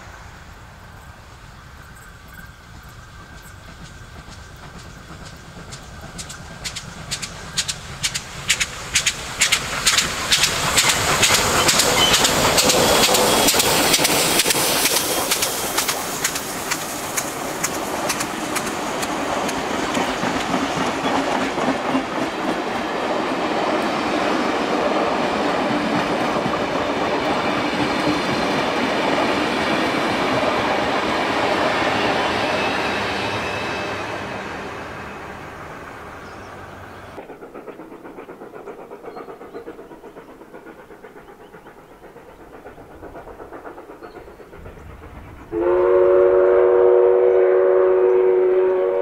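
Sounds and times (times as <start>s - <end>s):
steam locomotive exhaust chuffing: 0.0s - 49.0s
train wheels clacking over rail joints: 1.8s - 34.0s, 37.2s - 46.5s.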